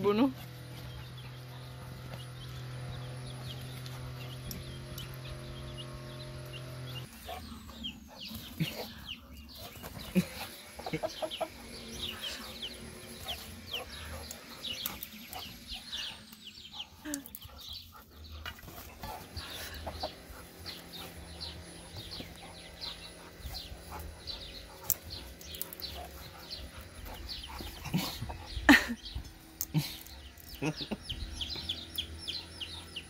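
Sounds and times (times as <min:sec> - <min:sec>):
steady low hum: 0:00.0 - 0:33.0
hen clucking: 0:07.2 - 0:17.6, 0:18.4 - 0:24.7.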